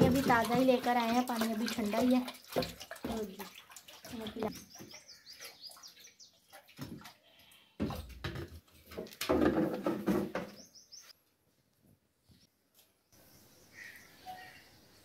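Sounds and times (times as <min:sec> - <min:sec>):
can and bucket clattering: 0:00.0 - 0:04.5, 0:07.8 - 0:10.6
water pouring into steel bucket: 0:00.0 - 0:04.6
bird chirping: 0:04.5 - 0:06.4, 0:10.4 - 0:11.2, 0:12.3 - 0:15.0.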